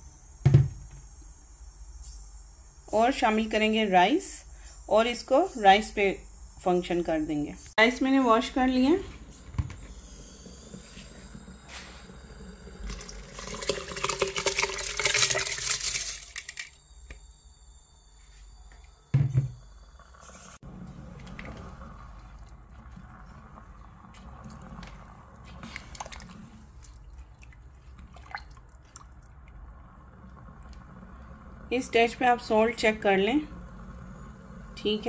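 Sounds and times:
simmering liquid bubbling: 19.9 - 34.8
rice rustling and splashing: 24.3 - 29.4.

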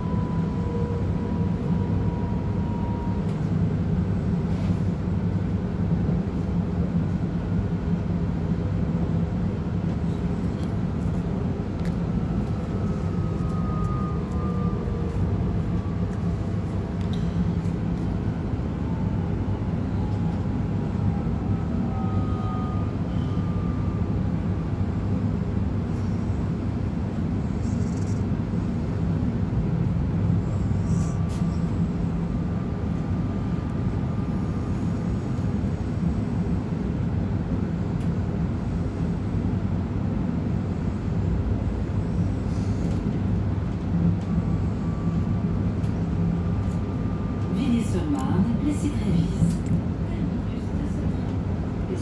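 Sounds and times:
train wheels rumbling on track: 0.0 - 52.0
faint whining tones: 11.0 - 29.1, 40.6 - 52.0.

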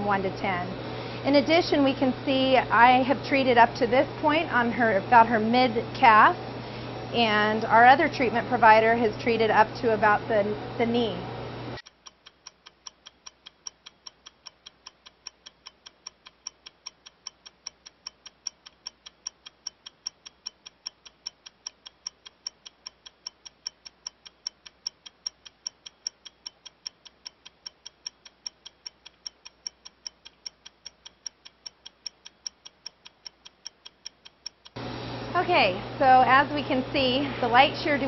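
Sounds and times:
rapid sharp ticking: 11.8 - 34.8.

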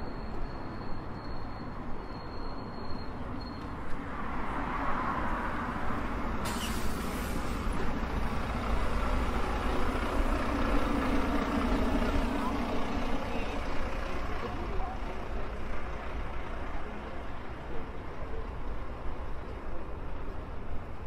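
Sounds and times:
bus engine running: 5.6 - 21.0
pneumatic air hiss: 6.4 - 7.6.

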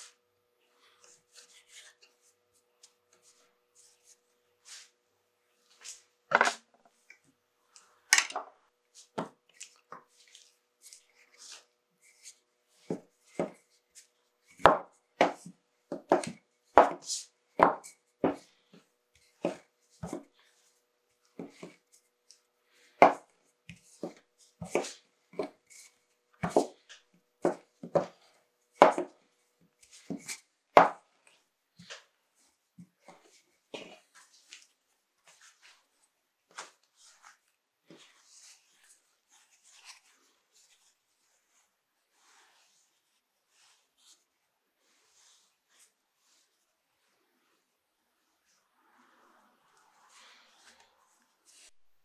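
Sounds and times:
hands patting dough on board: 14.5 - 18.5, 23.0 - 25.6, 28.8 - 29.2, 30.0 - 31.1.

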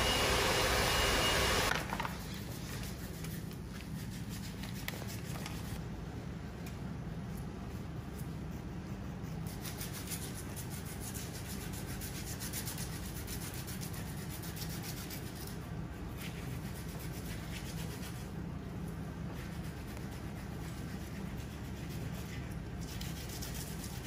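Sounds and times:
foot file rasping on skin: 19.4 - 24.0.

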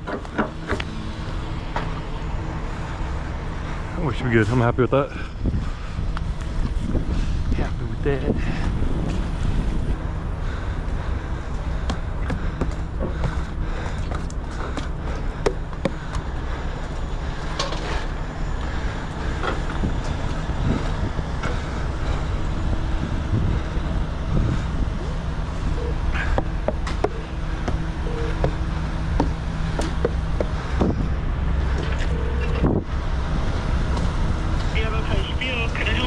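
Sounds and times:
diesel engine idling: 0.0 - 36.0
wind on microphone: 5.2 - 10.4, 19.6 - 26.9.

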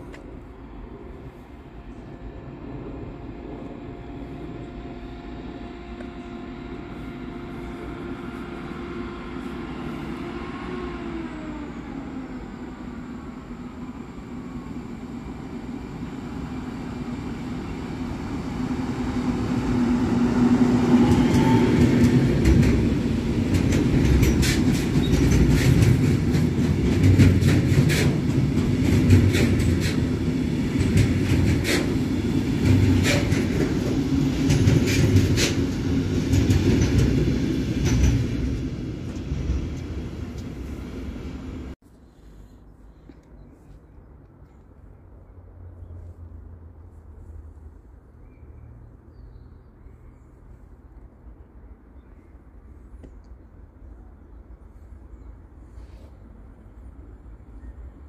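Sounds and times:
diesel locomotive engine drone: 0.0 - 58.0
train wagons rumbling: 15.5 - 41.8
wheels clattering over rail joints: 19.8 - 40.7.

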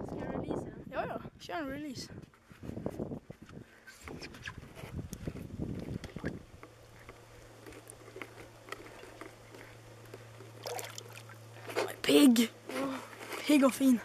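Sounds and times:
fish splashing: 10.6 - 11.4
water lapping against boat: 10.6 - 11.4.

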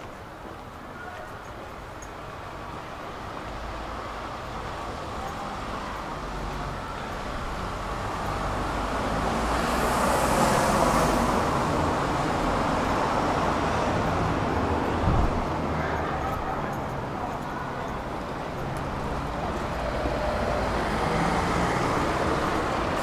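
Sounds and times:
city traffic rumble: 0.0 - 23.0
vehicle passing: 7.5 - 23.0.

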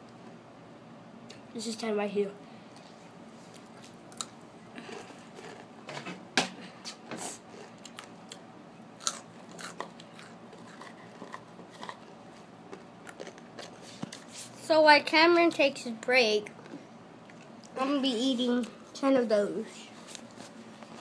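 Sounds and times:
crunchy chips being chewed: 3.5 - 5.7, 7.4 - 8.4, 9.0 - 14.3.

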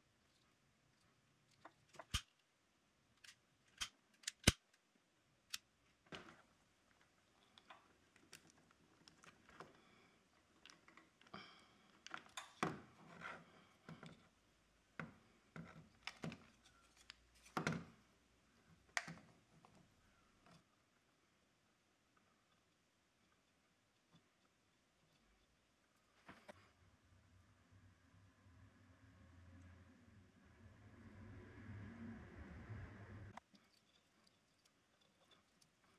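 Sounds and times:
wires rustling and clicking: 0.0 - 2.5, 3.1 - 4.9, 5.5 - 20.9, 33.3 - 35.9
hand tool snipping wire: 3.2 - 4.6.

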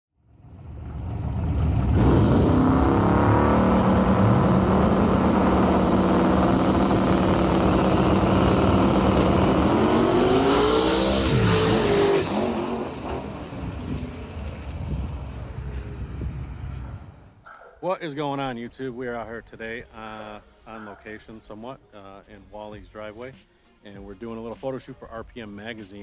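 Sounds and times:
drag racing engines revving: 0.4 - 17.2.

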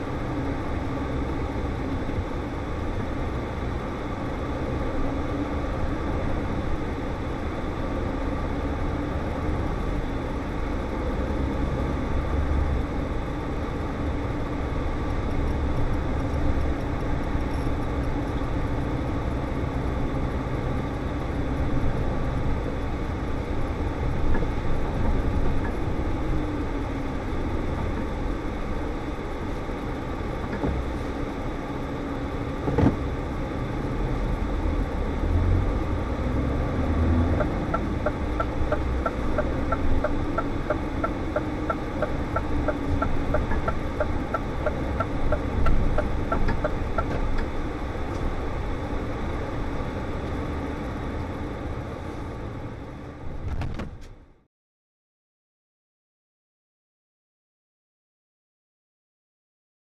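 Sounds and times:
diesel truck engine hum: 0.0 - 54.5
turn indicator ticking: 15.0 - 18.8, 37.4 - 47.5.

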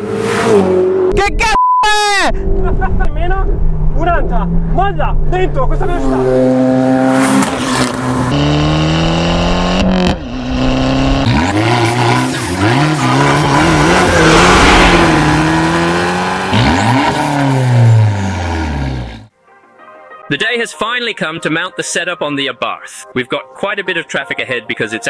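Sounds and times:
car engine revving hard: 6.1 - 19.3.

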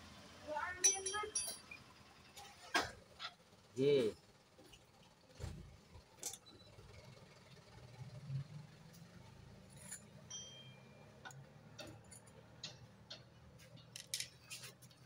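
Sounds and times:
metallic clicks and clinks: 0.8 - 1.9, 9.7 - 15.0.

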